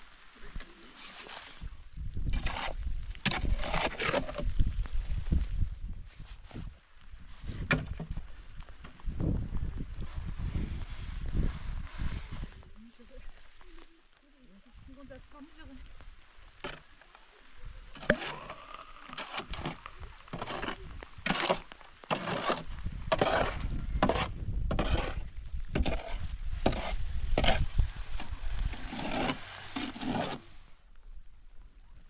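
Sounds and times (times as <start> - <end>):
shovel scraping wet mortar: 2.2 - 4.5, 17.9 - 30.6.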